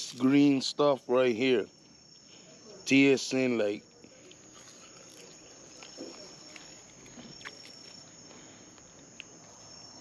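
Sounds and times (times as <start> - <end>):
crickets trilling: 0.0 - 10.0
faint chewing clicks: 3.8 - 9.6.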